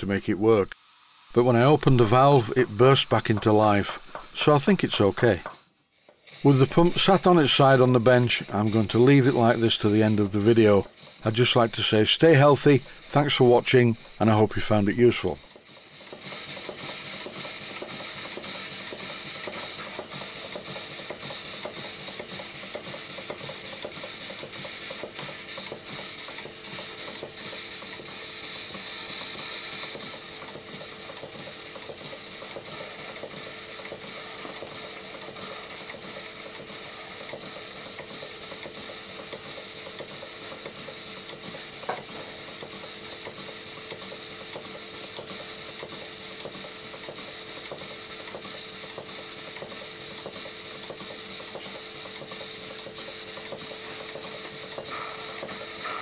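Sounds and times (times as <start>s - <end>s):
constant hiss: 0.0s - 5.5s
steam pump clattering: 6.3s - 56.0s.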